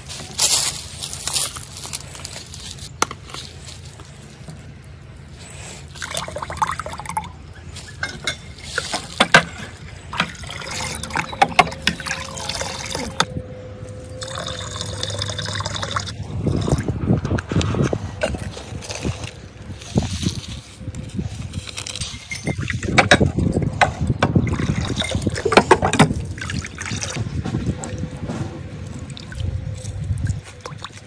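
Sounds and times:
water pouring and splashing: 5.4s - 13.3s, 14.2s - 23.6s, 24.2s - 31.0s.

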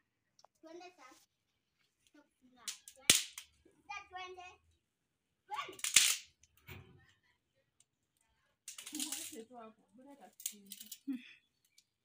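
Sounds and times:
child's voice: 0.6s - 1.3s, 2.1s - 3.1s, 3.8s - 4.7s, 5.5s - 5.8s.

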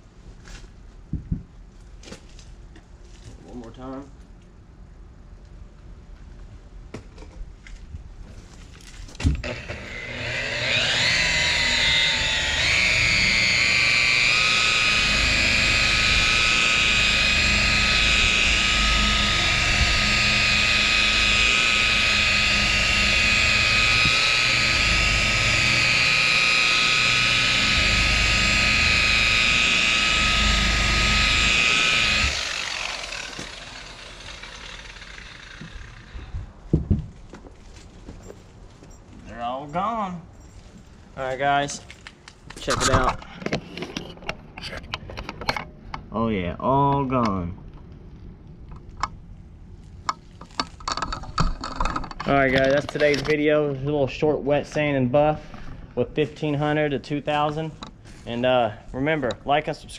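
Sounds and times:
electric polisher motor whine: 9.4s - 36.2s.

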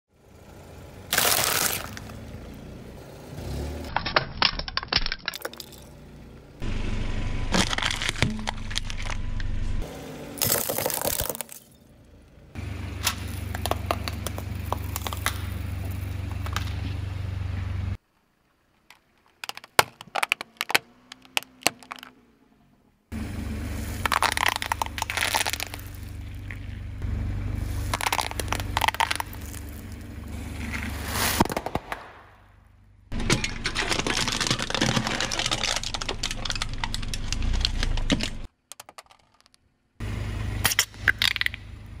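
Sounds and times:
low engine rumble: 0.1s - 4.8s, 5.4s - 10.5s, 11.6s - 18.7s, 20.9s - 31.4s, 32.3s - 38.5s, 39.8s - 42.0s
tyre crushing plastic and shell: 1.1s - 2.1s, 7.5s - 9.2s, 10.4s - 11.7s, 13.0s - 15.6s, 18.9s - 22.1s, 24.0s - 26.8s, 27.8s - 29.8s, 33.1s - 39.6s.

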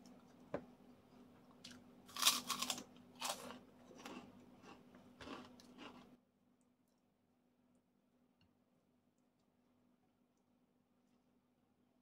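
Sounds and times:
crunching and chewing: 1.4s - 6.2s.

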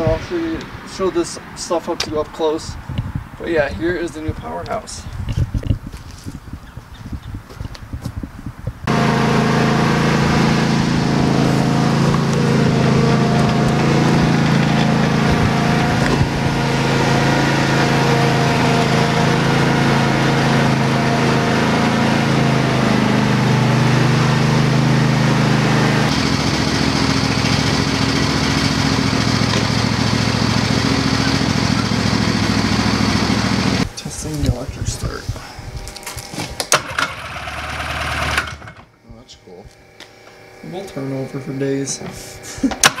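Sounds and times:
small engine running under load: 8.8s - 34.6s, 35.3s - 43.0s
rough pulsing engine: 8.8s - 43.0s.

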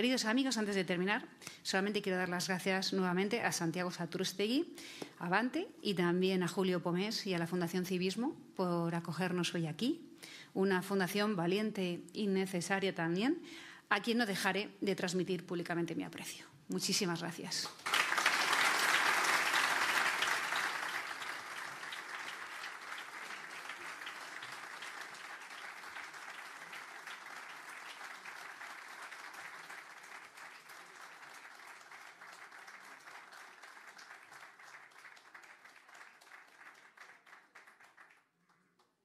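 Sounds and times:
audience applauding: 17.7s - 38.9s.

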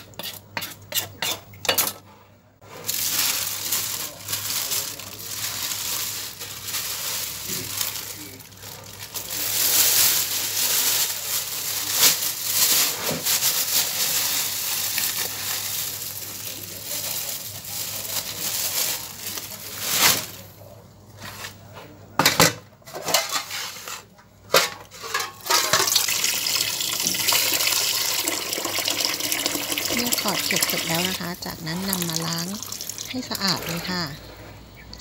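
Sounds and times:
tap water running and splashing: 25.8s - 34.1s.

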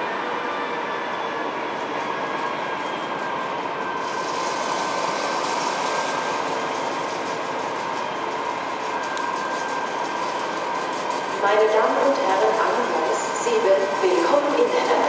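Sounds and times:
diesel locomotive engine running: 0.0s - 15.0s.

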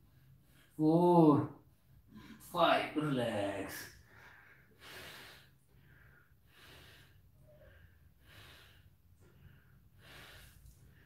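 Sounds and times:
man breathing softly: 4.0s - 11.0s.

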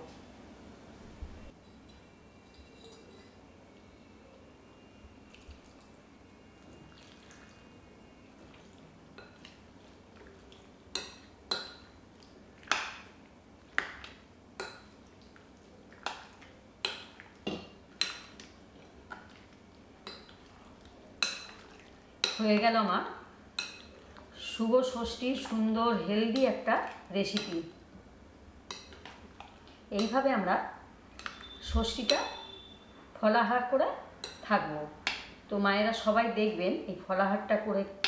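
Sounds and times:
spoon clinking against glass bowl: 1.6s - 3.4s, 31.2s - 32.8s
milk pouring into bowl: 6.6s - 7.8s.

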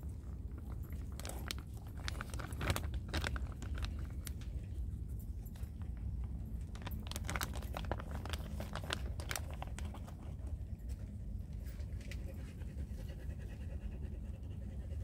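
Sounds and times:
steady low rumble: 0.0s - 15.0s
plastic bag crinkling: 0.2s - 4.8s, 6.6s - 10.5s.

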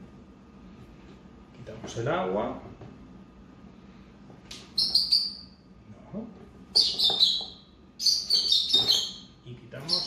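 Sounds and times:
bird giving shrill chirps: 4.8s - 5.6s, 6.8s - 10.0s.

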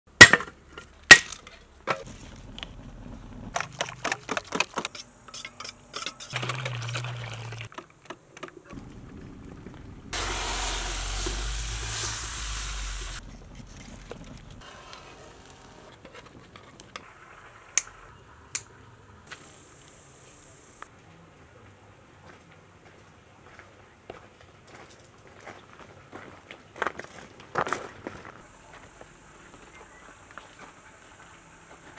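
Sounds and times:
wood fire burning: 2.0s - 3.6s, 8.7s - 20.9s.

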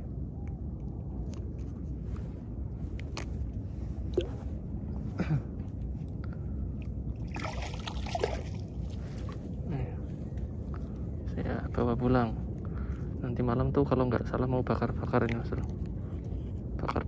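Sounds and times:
steady low rumble: 0.0s - 17.0s
hook and line clicks and rustles: 0.3s - 4.6s, 15.0s - 17.0s.

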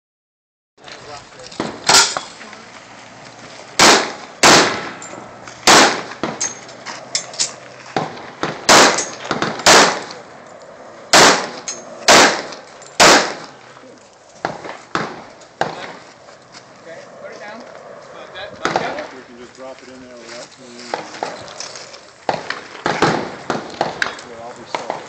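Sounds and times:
loud gunshots: 3.8s - 5.0s, 5.6s - 6.4s, 8.0s - 10.2s, 11.1s - 13.6s, 14.4s - 16.0s, 22.3s - 25.0s.

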